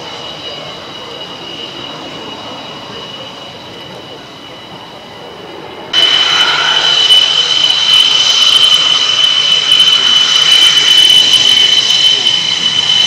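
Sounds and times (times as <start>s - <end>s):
jet turbine whine: 0.0s - 13.0s
rushing noise: 4.8s - 13.0s.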